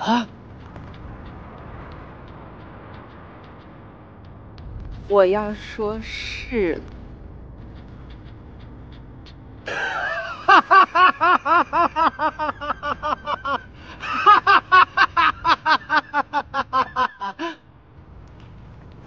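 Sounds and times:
man laughing loudly: 9.7s - 17.6s.

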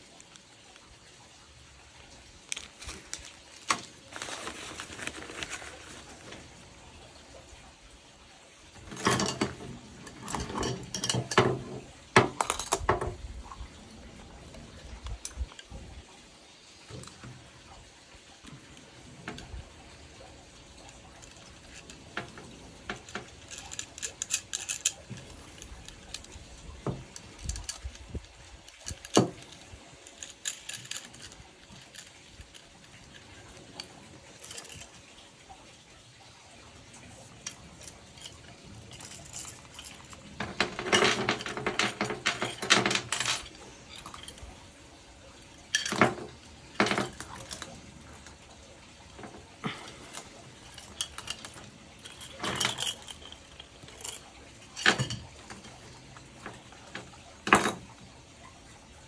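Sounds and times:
chain and clips clinking: 2.2s - 7.6s, 8.7s - 16.0s, 16.9s - 35.6s, 36.9s - 58.7s
chain rattling: 8.7s - 15.9s, 16.9s - 35.3s, 37.0s - 58.5s.

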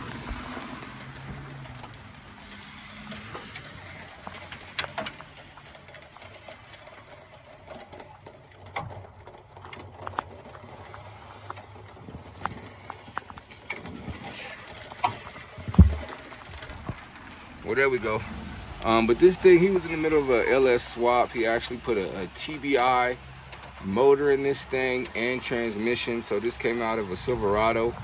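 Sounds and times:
metal clicks and knocks: 0.0s - 17.4s.

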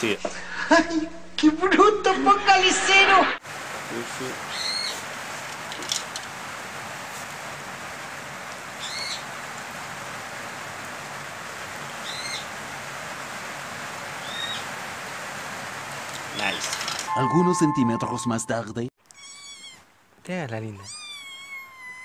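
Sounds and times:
bird chirping: 4.5s - 5.0s.

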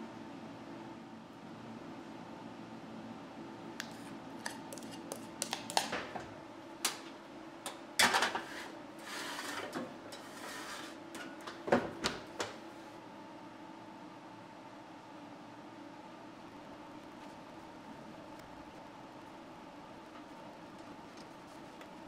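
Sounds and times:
metal tray clattering on oven rack: 8.0s - 8.5s
tray scraping on rack: 8.0s - 11.0s.

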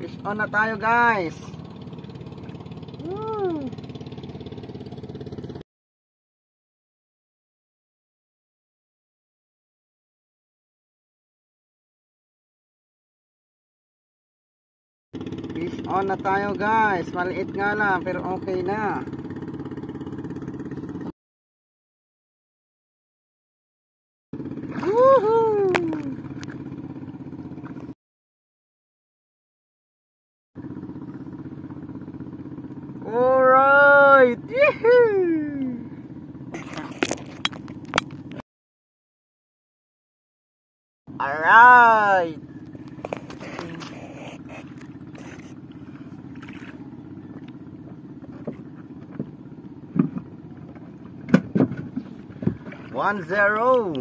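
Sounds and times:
engine drone: 0.0s - 5.6s, 15.2s - 21.1s, 24.4s - 28.0s, 30.6s - 38.4s, 41.1s - 54.0s
man whooping: 3.0s - 3.8s, 24.8s - 26.2s, 33.1s - 35.8s
knocks on boat: 48.2s - 53.0s.

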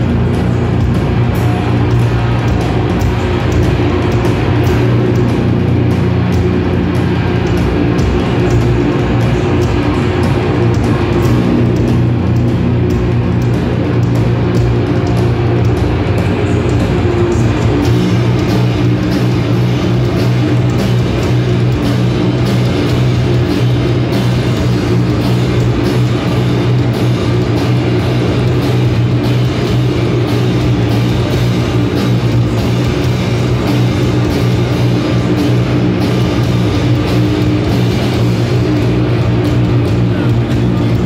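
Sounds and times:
drums: 0.0s - 41.0s
electric guitars: 0.0s - 41.0s.

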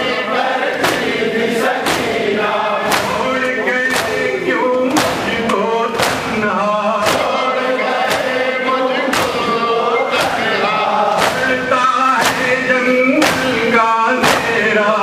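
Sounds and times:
men chanting together: 0.0s - 15.0s
hands slapping chests: 1.8s - 6.4s, 7.0s - 7.4s, 9.1s - 9.5s, 10.2s - 11.6s, 12.2s - 12.6s, 13.2s - 13.6s, 14.2s - 14.6s.

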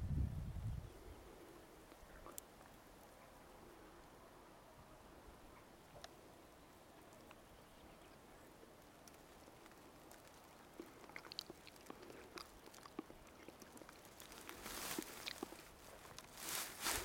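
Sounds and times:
small clicks and ticks: 8.8s - 16.3s.

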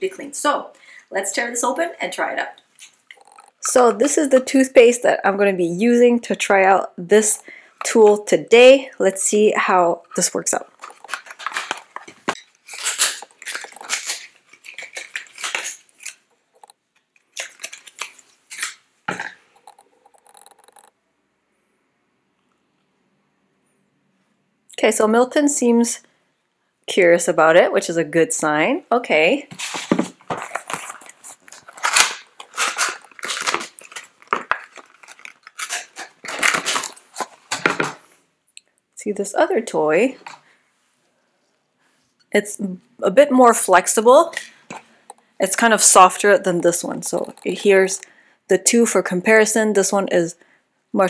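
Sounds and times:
plastic wrapping crinkling: 2.6s - 4.4s, 10.1s - 20.9s, 29.5s - 38.1s, 44.4s - 47.6s.

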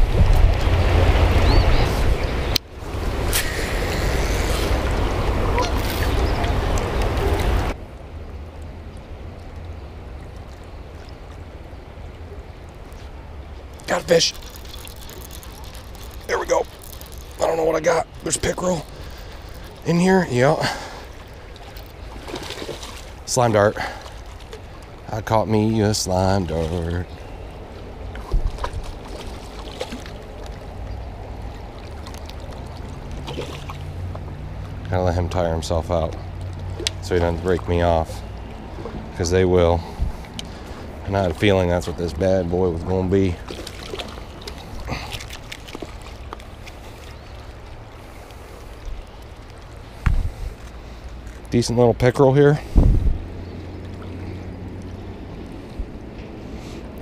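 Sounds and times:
river water rushing: 0.0s - 51.5s, 52.5s - 57.0s
fish splashing at surface: 13.8s - 19.9s, 31.8s - 34.1s.

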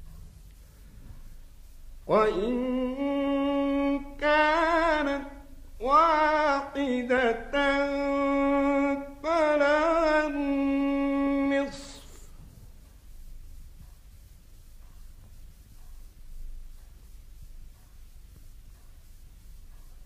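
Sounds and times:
man chanting melodically: 2.0s - 12.3s.

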